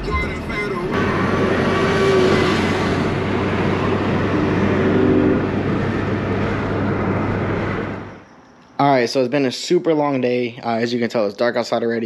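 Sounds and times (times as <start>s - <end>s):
car engine hum: 0.0s - 8.3s
road noise: 0.0s - 12.0s.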